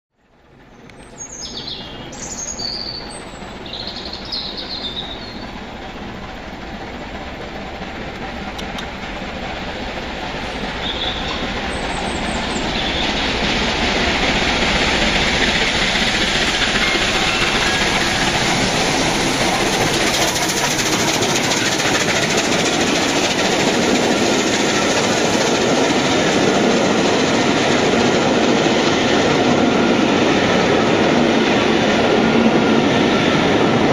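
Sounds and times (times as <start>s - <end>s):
steam train passing: 0.3s - 33.9s
birds chirping: 0.8s - 5.8s, 10.6s - 13.3s.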